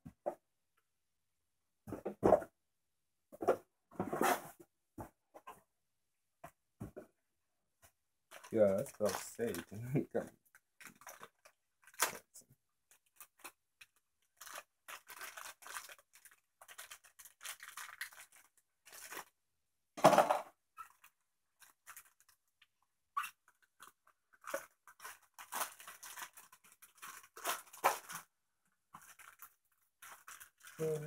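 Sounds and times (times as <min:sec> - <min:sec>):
plastic packaging tearing and crinkling: 0:08.3 - 0:09.7, 0:10.7 - 0:12.3, 0:12.9 - 0:19.3, 0:23.8 - 0:28.3, 0:29.0 - 0:31.0.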